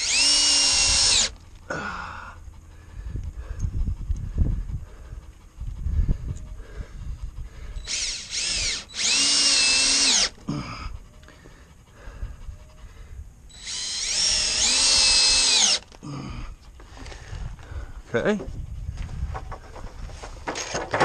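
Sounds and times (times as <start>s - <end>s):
cordless drill motor whining: 0.0s - 1.4s, 7.6s - 10.4s, 13.5s - 16.0s.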